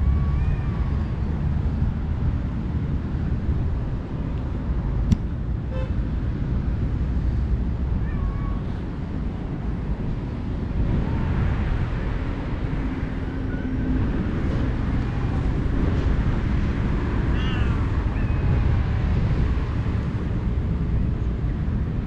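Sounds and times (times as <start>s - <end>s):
steady low rumble: 0.0s - 22.0s
cats meowing: 8.0s - 8.8s, 17.3s - 18.6s.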